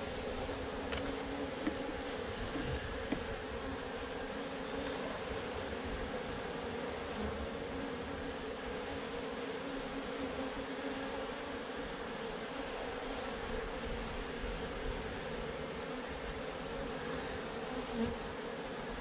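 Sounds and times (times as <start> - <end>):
bees buzzing: 0.0 - 19.0.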